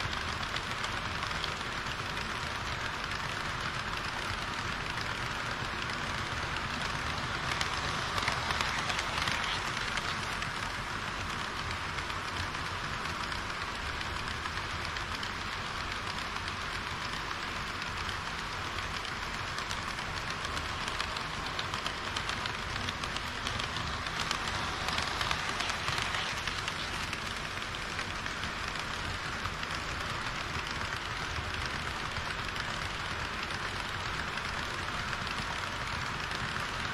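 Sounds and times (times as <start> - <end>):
model train wheels rattling: 0.0 - 36.9.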